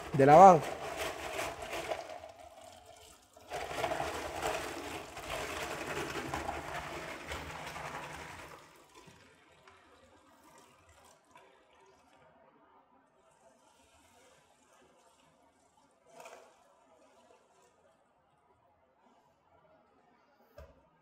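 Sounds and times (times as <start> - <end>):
hand stirring gravel: 0.0 - 2.0
tap water running into sink: 0.0 - 11.2.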